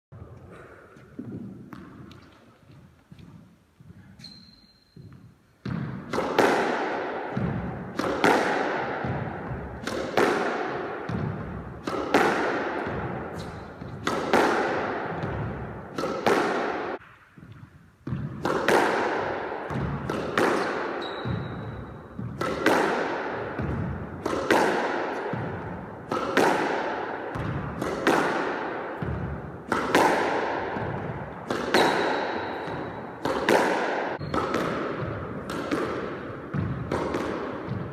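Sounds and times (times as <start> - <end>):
shoe squeaks on court floor: 4.1 - 5.5, 20.6 - 22.2, 34.2 - 34.5
squash ball hit with racket: 5.2 - 37.9.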